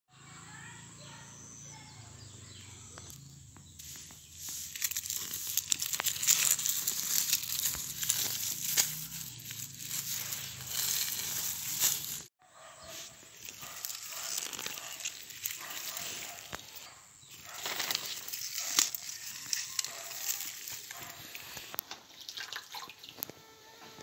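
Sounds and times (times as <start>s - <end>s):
dry onion leaves crackling: 3.0s - 12.3s, 12.9s - 21.8s.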